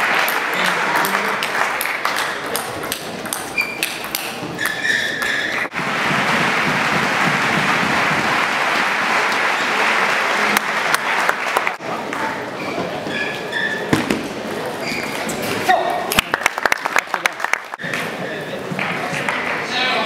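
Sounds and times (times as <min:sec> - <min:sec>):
shoe squeaks on floor: 0:03.4 - 0:05.7, 0:12.6 - 0:14.0, 0:14.8 - 0:15.5.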